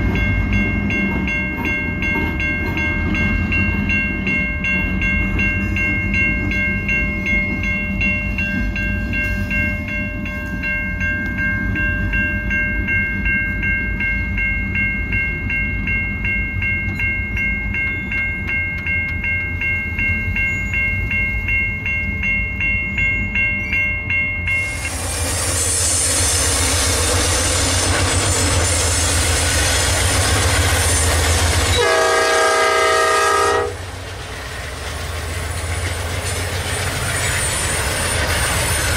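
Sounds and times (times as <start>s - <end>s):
freight train passing: 0.0s - 38.9s
railroad crossing bell ringing: 0.0s - 38.9s
locomotive engine rumble: 24.3s - 38.9s
train horn blast: 31.7s - 33.9s.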